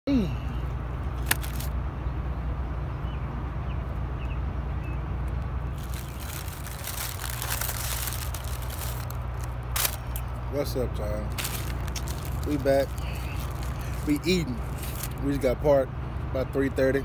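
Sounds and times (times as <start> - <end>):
steady low hum: 0.1 - 16.3
paper wrappers rustling: 1.2 - 1.7, 5.7 - 10.2, 11.3 - 15.3.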